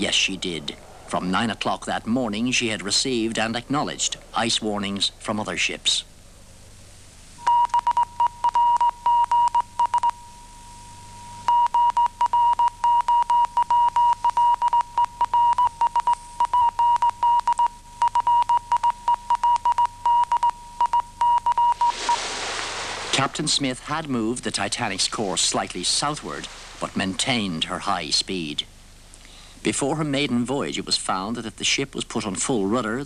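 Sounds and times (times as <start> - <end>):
morse code tone: 7.4 - 22.0.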